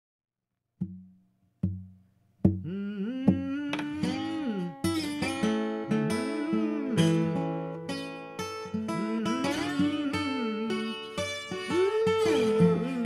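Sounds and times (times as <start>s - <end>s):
slide guitar: 2.6s - 13.0s.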